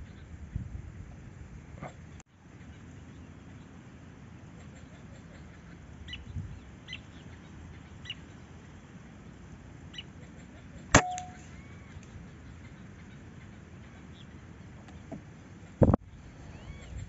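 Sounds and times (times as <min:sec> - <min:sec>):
high bird calls: 0:09.9 - 0:14.4, 0:15.0 - 0:17.0
rifle shot: 0:11.0 - 0:11.4.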